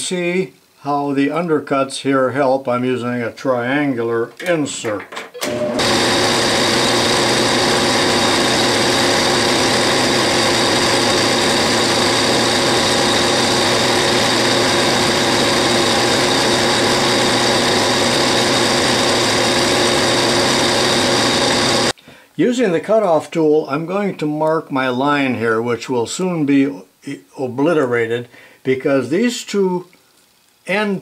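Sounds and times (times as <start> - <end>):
metal lathe humming: 5.4 - 21.9.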